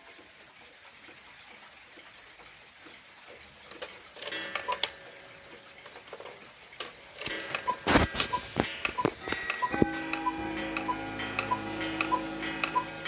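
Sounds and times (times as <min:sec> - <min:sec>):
clock mechanism clicks: 0:03.7 - 0:13.0
clock ticking: 0:03.8 - 0:13.0.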